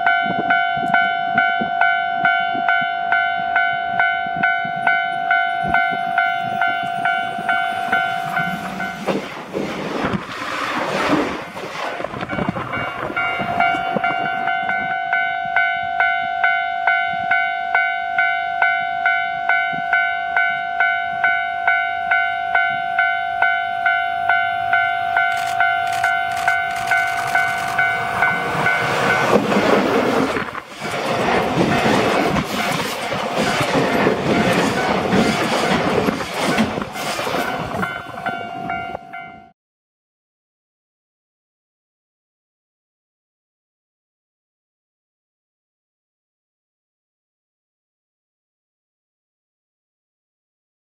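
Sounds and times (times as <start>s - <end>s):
level crossing bell dinging: 0.0s - 9.0s
electric train passing: 0.0s - 39.5s.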